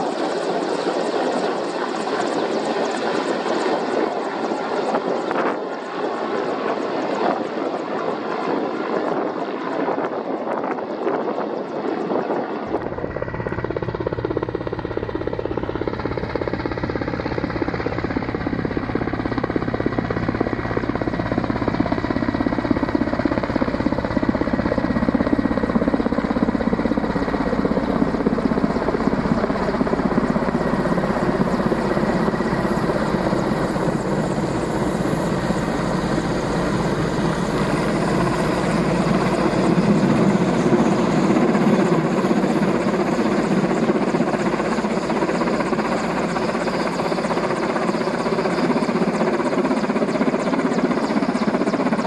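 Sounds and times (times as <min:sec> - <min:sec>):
helicopter rotor beat: 0:00.0 - 0:52.0
turbine whine: 0:12.6 - 0:52.0.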